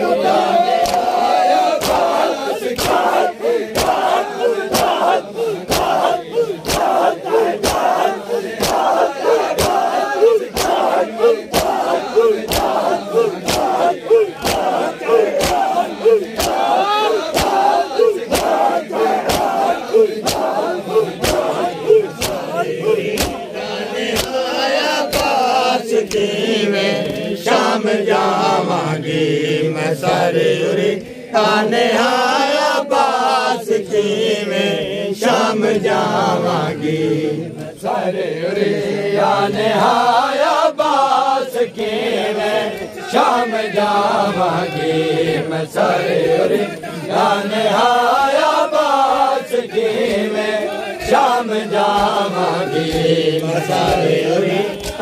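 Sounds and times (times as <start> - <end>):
crowd of men chanting in unison: 0.0 - 55.0
hands slapping on chests: 0.6 - 27.3, 49.9 - 55.0.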